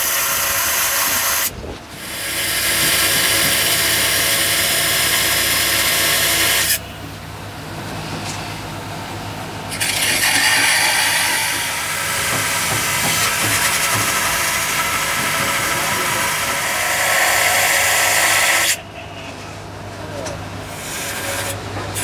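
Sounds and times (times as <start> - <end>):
angle grinder grinding metal: 0.0 - 6.8, 9.7 - 18.8.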